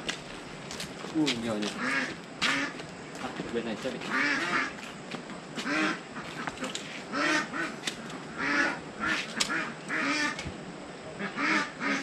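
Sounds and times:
poultry calling: 1.7s - 2.8s, 4.0s - 4.8s, 5.6s - 10.4s, 11.2s - 12.0s.

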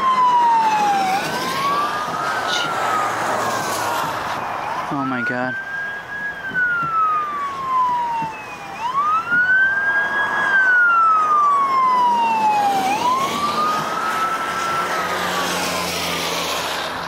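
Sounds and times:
police siren wailing: 0.0s - 17.0s
tyres hissing on wet road: 15.0s - 17.0s.

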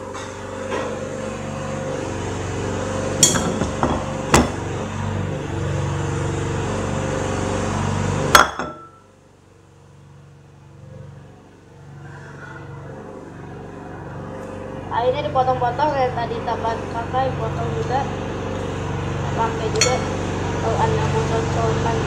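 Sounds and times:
steady low hum: 0.0s - 22.0s
hard objects knocking: 3.2s - 4.6s.

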